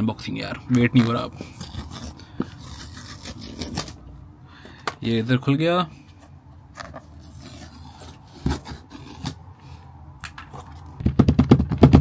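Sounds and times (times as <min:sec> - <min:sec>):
rapid rasping strokes: 0:01.4 - 0:04.0
scrapes on cardboard box: 0:06.9 - 0:09.4
knock on cardboard box: 0:11.0 - 0:12.0.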